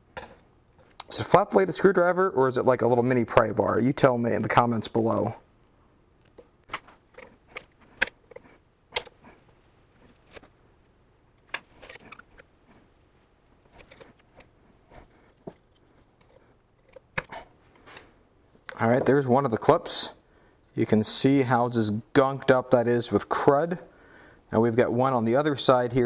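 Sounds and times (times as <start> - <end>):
screwdriver clicking and scraping metal: 6.7 - 9.2.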